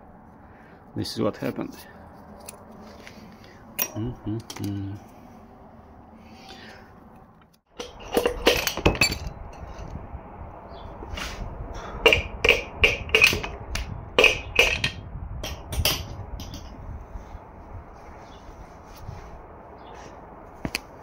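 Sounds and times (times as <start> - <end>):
metal clanks and clinks: 3.8 - 4.7, 7.7 - 9.8, 12.0 - 13.6, 14.2 - 16.8.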